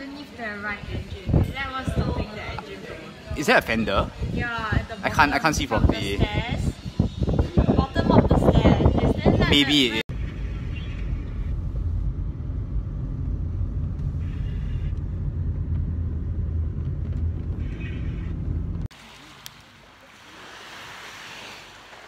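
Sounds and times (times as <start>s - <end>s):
car engine and tyres rumbling: 10.1s - 18.9s.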